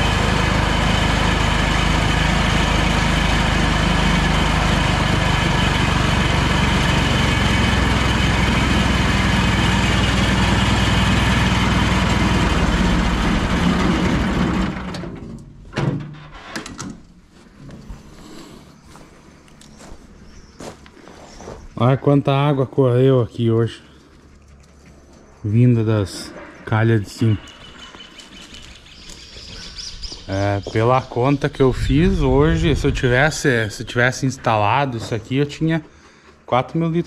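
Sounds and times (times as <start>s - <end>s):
small tractor engine running: 0.0s - 15.6s.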